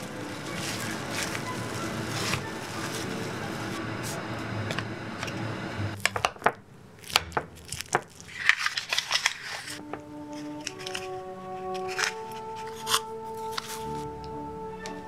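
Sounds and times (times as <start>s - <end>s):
steady rushing hiss: 0.0s - 6.0s.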